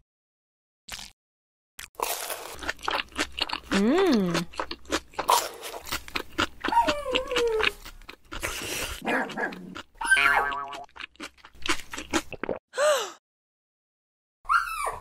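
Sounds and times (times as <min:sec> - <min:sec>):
dog whining: 0:06.6 - 0:07.8, 0:10.0 - 0:10.6, 0:14.5 - 0:15.0.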